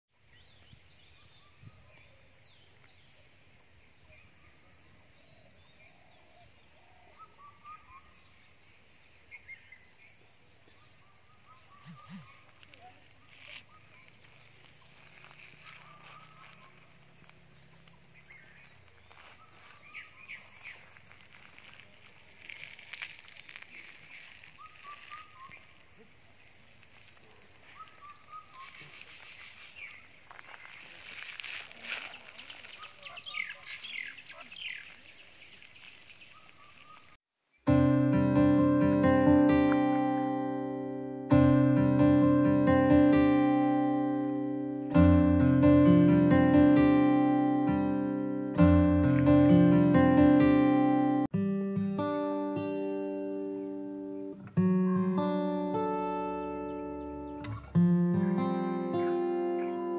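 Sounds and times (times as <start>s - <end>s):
insects trilling: 0.2s - 37.2s
birds chirping: 9.3s - 21.8s, 22.4s - 25.9s, 27.4s - 37.2s, 52.9s - 57.8s.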